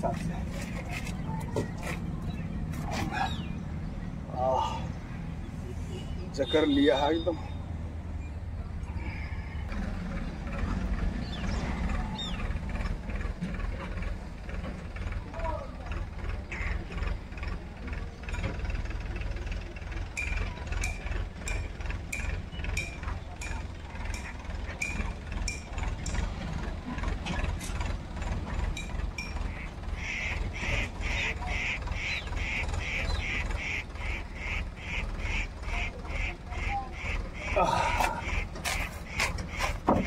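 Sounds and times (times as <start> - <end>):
bird squawking: 29.5 - 39.8.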